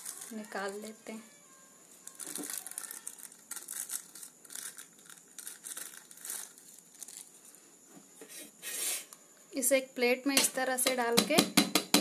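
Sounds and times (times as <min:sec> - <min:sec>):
paper crinkling and rustling: 0:00.0 - 0:00.7, 0:02.0 - 0:07.5.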